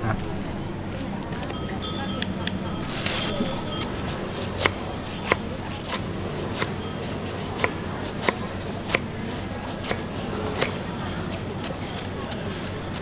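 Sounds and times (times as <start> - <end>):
knife chopping on cutting board: 4.0 - 11.4.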